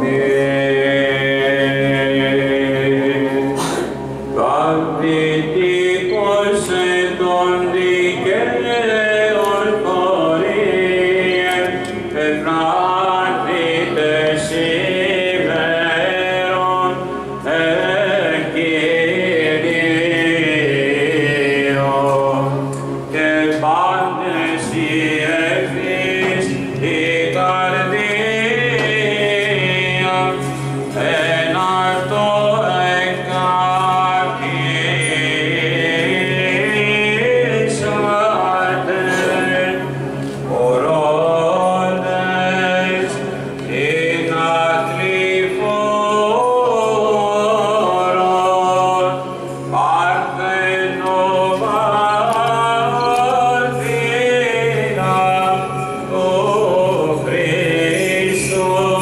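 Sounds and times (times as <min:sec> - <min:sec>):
held low vocal drone: 0:00.0 - 0:59.0.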